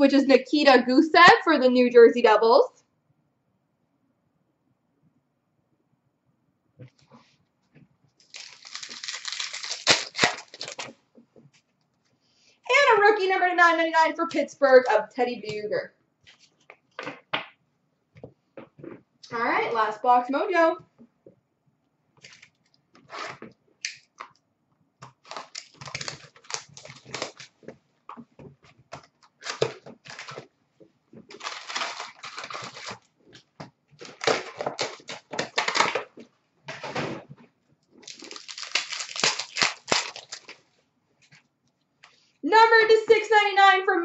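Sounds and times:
cards rustling: 8.2 - 11.0, 25.2 - 27.5, 31.3 - 33.0, 38.0 - 40.6
foil wrappers tearing and crinkling: 8.2 - 11.0, 25.1 - 27.6, 29.3 - 30.4, 31.3 - 33.1, 34.0 - 36.1, 38.0 - 40.6.

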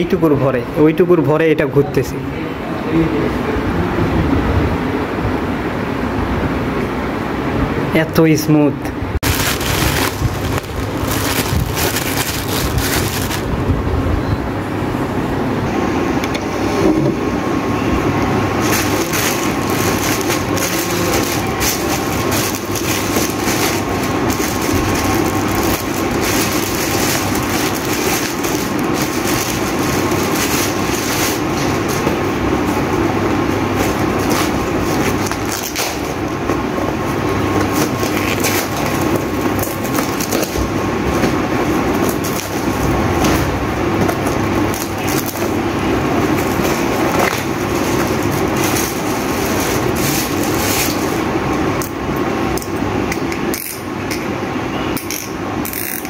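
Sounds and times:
plastic packaging crinkling: 9.2 - 13.6, 18.6 - 32.7, 33.6 - 36.2, 37.6 - 40.8, 44.2 - 51.5.

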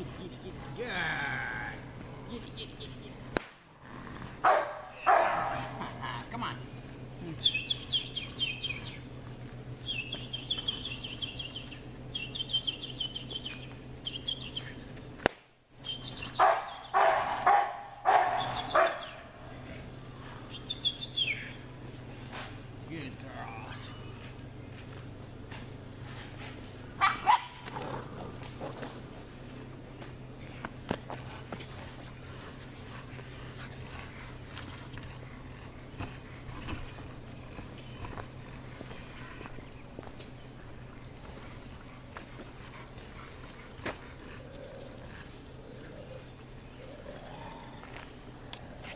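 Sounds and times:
steady low hum: 0.0 - 48.9
puppies scuffling on dirt: 6.7 - 15.2, 15.9 - 48.9
puppies yipping: 15.9 - 19.3, 27.0 - 27.8, 32.8 - 39.7.

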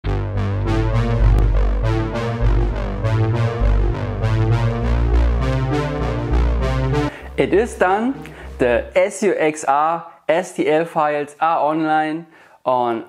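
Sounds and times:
electronic music: 0.0 - 9.4.

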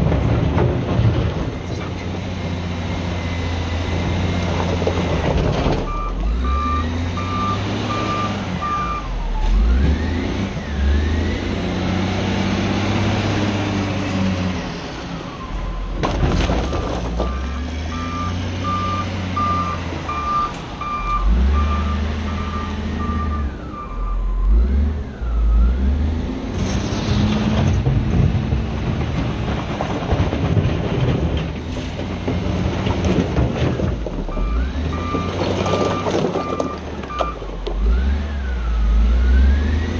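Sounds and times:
diesel engine revving under load: 0.0 - 39.9
reversing alarm beeping: 5.9 - 9.2, 16.7 - 25.8, 34.3 - 37.4.

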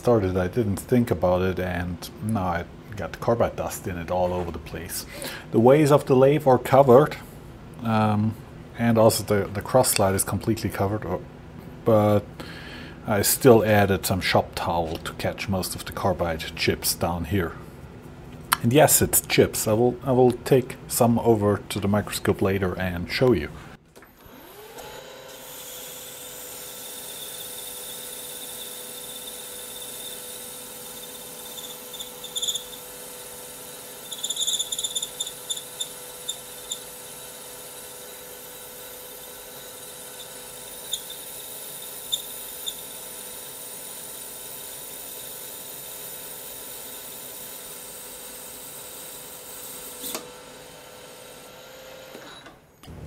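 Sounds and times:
lathe spindle whining: 24.2 - 43.8
cutting insert squeaking: 30.9 - 32.9, 34.0 - 37.2, 39.8 - 42.9.

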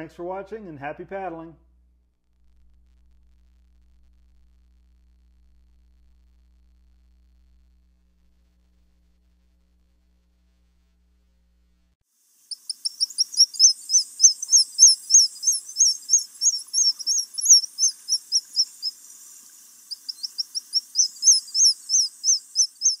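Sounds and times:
bird chirping rapidly: 12.5 - 23.0.

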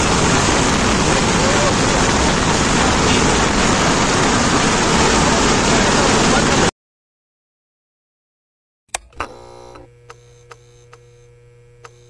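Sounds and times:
tractor engine on road: 0.0 - 6.6.

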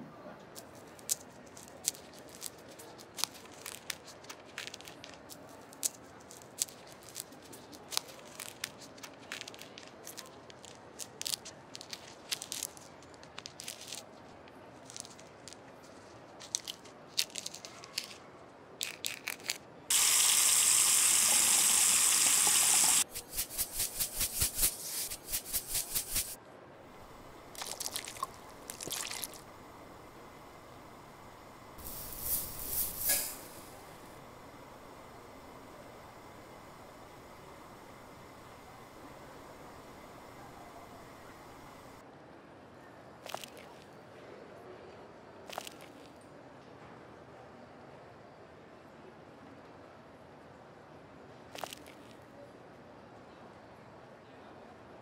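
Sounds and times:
running water: 19.9 - 23.1, 26.9 - 42.0.

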